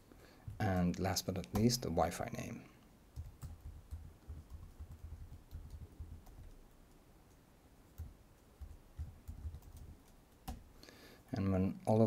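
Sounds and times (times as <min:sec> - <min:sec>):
typing on computer keyboard: 0:03.2 - 0:10.6.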